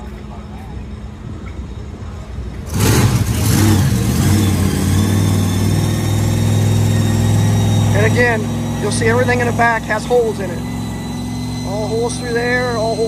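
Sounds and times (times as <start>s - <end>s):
engine starting and idling: 2.6s - 13.0s
low background hum: 5.3s - 13.0s.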